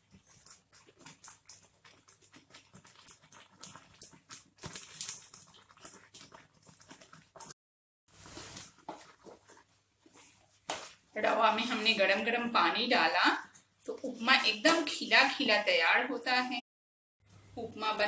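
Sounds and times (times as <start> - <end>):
spatula scraping in a pan: 8.1 - 12.3.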